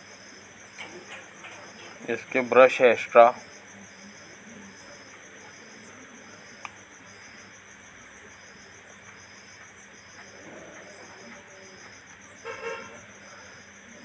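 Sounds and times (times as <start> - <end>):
crickets chirping: 0.0 - 14.0
vehicle horn toot: 12.4 - 13.0.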